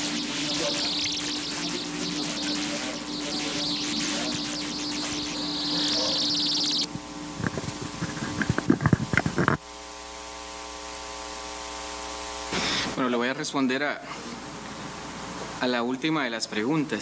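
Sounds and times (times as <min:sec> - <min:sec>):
high buzzing hiss: 0:00.0 - 0:13.1
electrical hum: 0:00.0 - 0:17.0.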